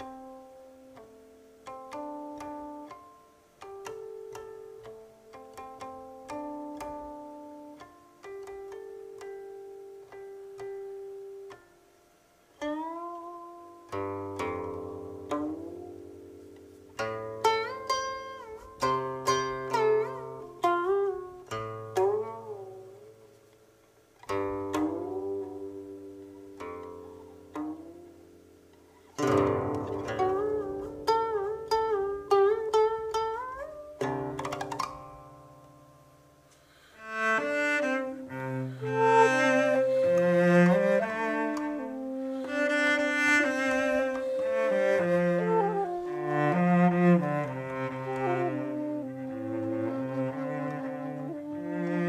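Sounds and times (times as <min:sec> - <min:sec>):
cello: 0:00.0 - 0:11.7, 0:12.4 - 0:52.0
plucked zither with sliding notes: 0:12.6 - 0:23.3, 0:24.2 - 0:35.8, 0:36.6 - 0:52.0
bamboo flute: 0:36.6 - 0:52.0.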